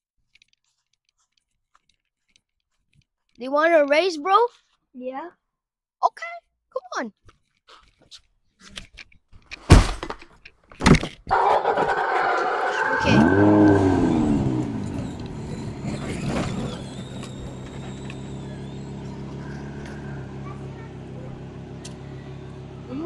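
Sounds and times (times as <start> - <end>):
toy truck electric motor hum: 14.8 - 20.9.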